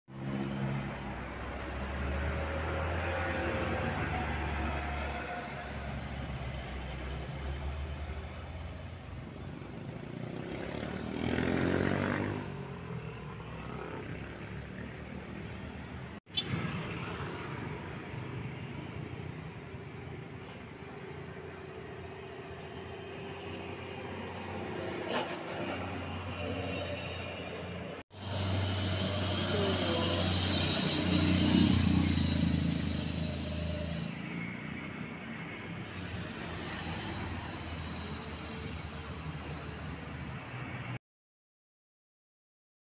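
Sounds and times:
steady traffic noise: 0.1 - 41.0
motor scooter passing: 10.1 - 15.1.

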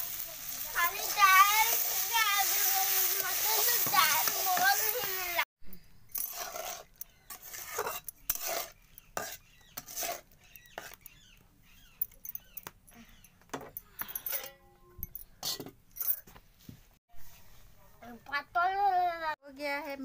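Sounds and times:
spatula scraping metal pan: 0.4 - 5.4, 6.1 - 11.1.

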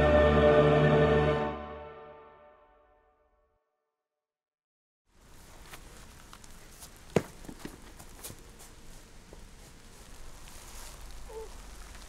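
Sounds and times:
rustling in dry leaves: 5.1 - 12.0.

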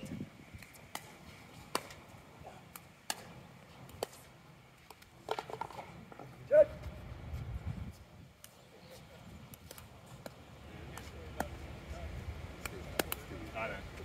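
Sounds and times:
paddles hitting plastic ball: 0.6 - 2.0, 2.6 - 6.2, 12.6 - 13.3
person shouting: 6.5 - 6.8.

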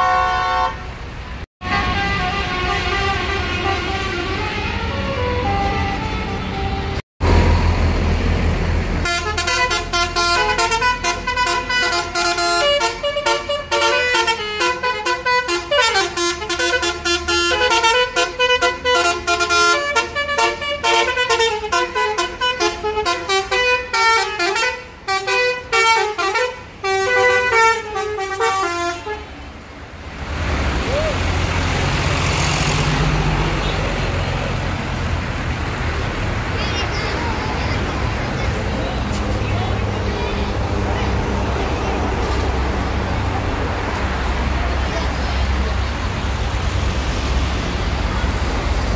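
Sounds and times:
musical air horn tune: 0.0 - 0.9, 1.6 - 7.0, 9.0 - 29.3
bus engine rumble: 0.0 - 48.9.

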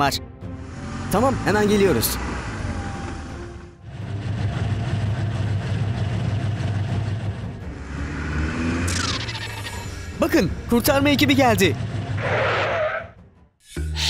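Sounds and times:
car engine running: 0.5 - 12.7.

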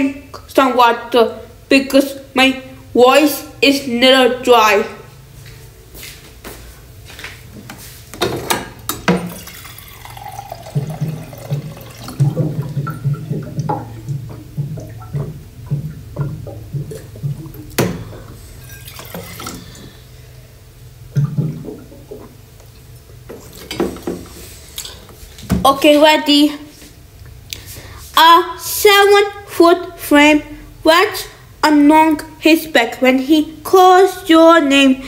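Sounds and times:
water sloshing: 9.0 - 20.0, 21.1 - 25.7.

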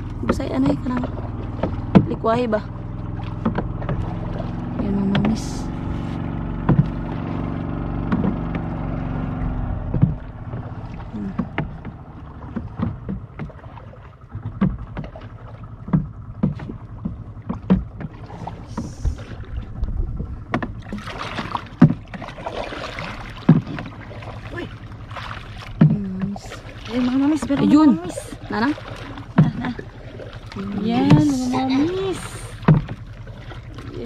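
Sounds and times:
motor drone: 0.0 - 13.4
water slapping against boat hull: 0.0 - 34.0
water splashing: 0.0 - 34.0.

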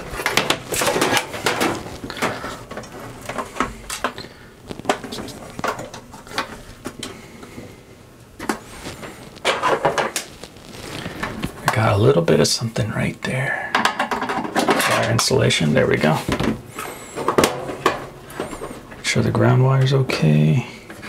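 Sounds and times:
wire harness rustling: 0.0 - 7.2, 8.4 - 12.0.

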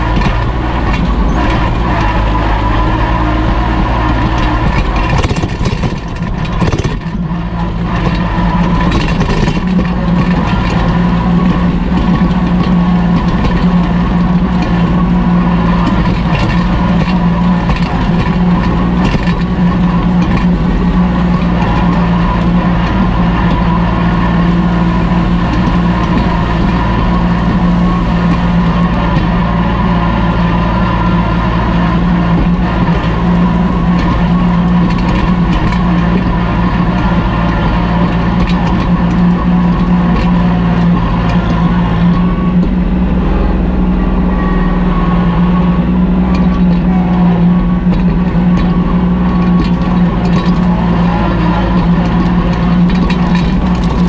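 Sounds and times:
tractor diesel engine running: 0.0 - 54.0.

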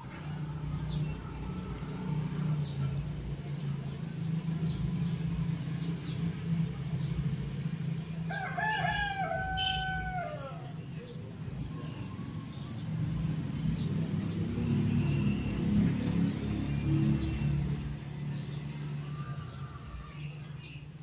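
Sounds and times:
rooster crowing: 8.3 - 10.8, 18.7 - 20.4.

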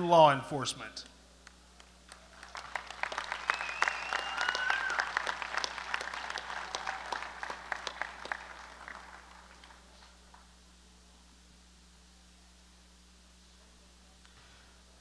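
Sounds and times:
audience applauding: 1.8 - 10.4.

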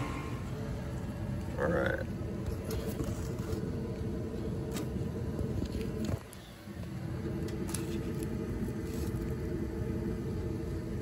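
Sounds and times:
furnace motor hum: 0.0 - 11.0.

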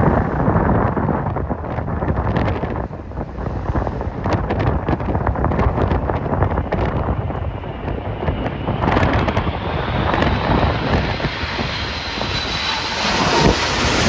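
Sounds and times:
wind buffeting microphone: 0.0 - 14.0
jet engines whining: 5.6 - 14.0.

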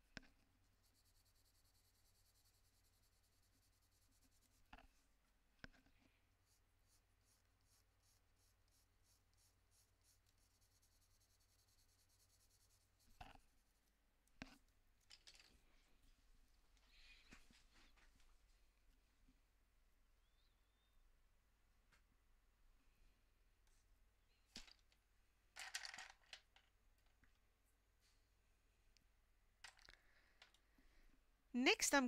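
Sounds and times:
coloured pencil scratching on paper: 0.3 - 14.6.

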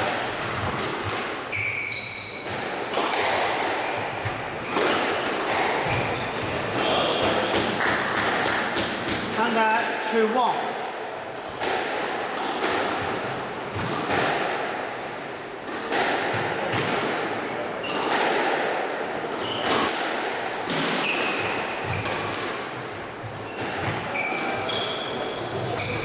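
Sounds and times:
shoes squeaking on wooden floor: 0.0 - 0.9, 1.5 - 2.8, 5.8 - 7.2, 19.4 - 19.9, 21.8 - 22.6, 23.2 - 26.0
squash ball hits echoing: 0.0 - 10.8, 11.4 - 26.0.

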